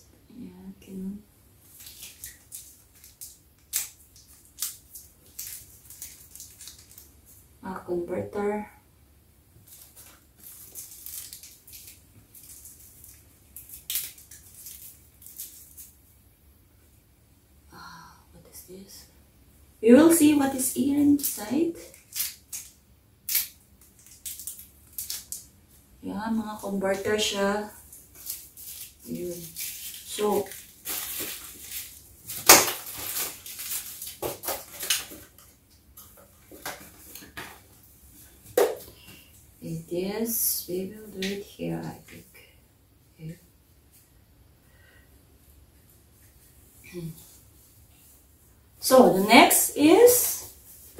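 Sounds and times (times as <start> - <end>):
packaging rustling and crinkling: 1.7 - 7.4, 9.6 - 16.0, 21.2 - 25.5, 27.8 - 39.4.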